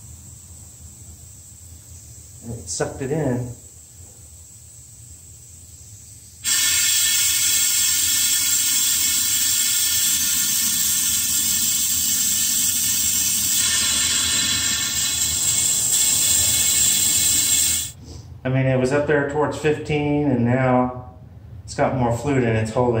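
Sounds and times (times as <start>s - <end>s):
compressed air vacuum tool hissing: 6.2s - 18.2s.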